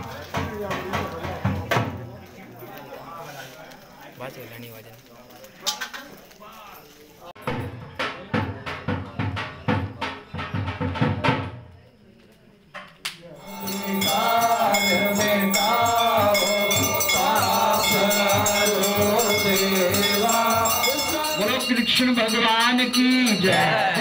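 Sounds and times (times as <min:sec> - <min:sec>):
devotional chanting with beat: 0:13.4 - 0:24.0.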